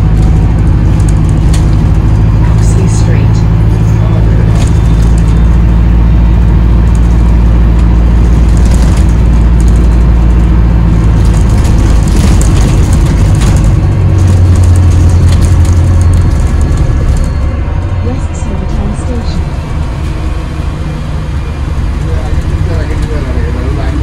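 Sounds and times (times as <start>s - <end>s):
light interior rattles: 0.0s - 20.8s
bus engine drone: 0.0s - 24.0s
strong low hum: 0.0s - 24.0s.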